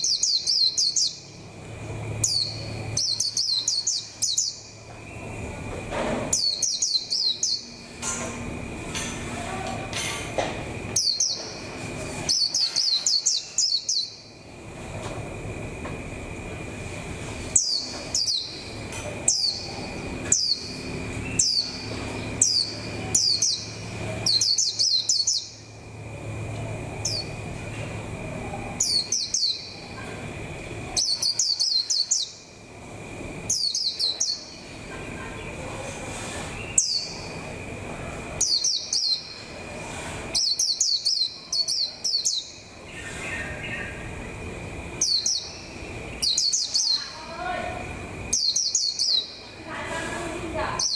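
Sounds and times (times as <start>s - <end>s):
bird chirping: 0.0s - 1.4s, 2.1s - 5.5s, 6.3s - 8.0s, 10.9s - 14.4s, 17.5s - 25.8s, 28.8s - 30.0s, 30.9s - 32.5s, 33.4s - 35.7s, 36.5s - 37.6s, 38.4s - 39.6s, 40.3s - 47.4s, 48.2s - 49.5s.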